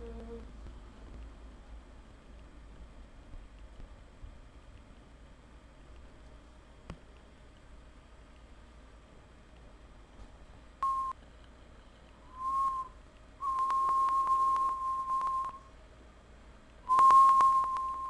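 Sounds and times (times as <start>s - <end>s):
person whistling: 12.3s - 15.6s, 16.9s - 18.0s.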